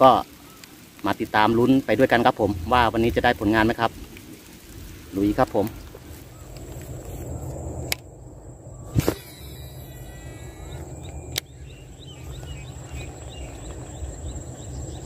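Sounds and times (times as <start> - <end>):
wind rumble on microphone: 2.1 - 9.2, 9.8 - 15.0.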